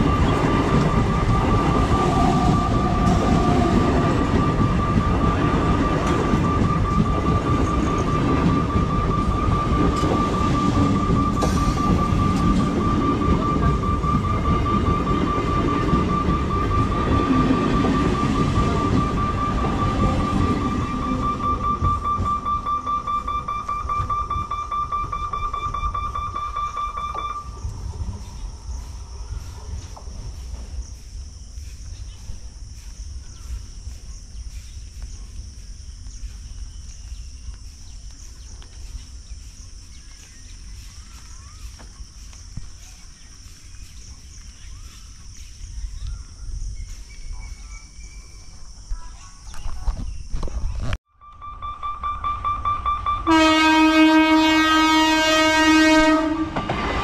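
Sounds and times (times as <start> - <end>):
level crossing alarm beeping: 0.0 - 27.7, 51.1 - 57.0
high-pitched insect drone: 0.0 - 50.4
bird chirps: 3.8 - 53.3.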